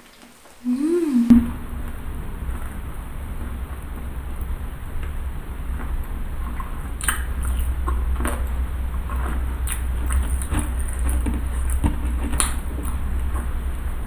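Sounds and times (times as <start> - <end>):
steady low hum: 0.6 - 14.0
chewing mouth clicks and smacks: 5.8 - 13.6.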